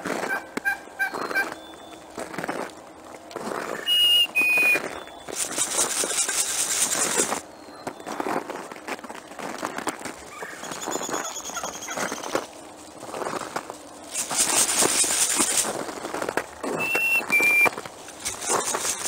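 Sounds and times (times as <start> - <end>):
turkeys scratching and pecking: 0.0 - 19.0
high whistled notes: 3.8 - 5.3, 16.8 - 17.7
hissing rustle: 3.9 - 7.5, 11.6 - 19.0.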